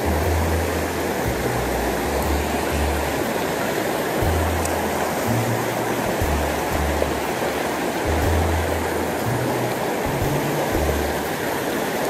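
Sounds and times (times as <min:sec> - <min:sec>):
background music with bass: 0:00.0 - 0:12.0
stream rushing over boulders: 0:00.0 - 0:12.0.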